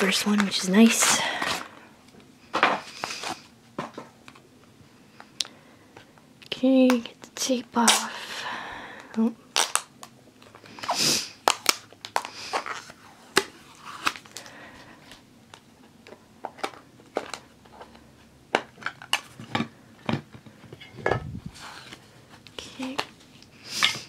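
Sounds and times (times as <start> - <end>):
tape peeling off plastic: 9.6 - 10.1.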